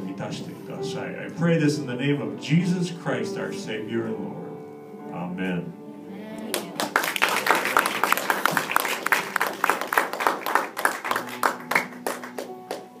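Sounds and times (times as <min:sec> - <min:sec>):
people applauding: 0:06.4 - 0:13.0.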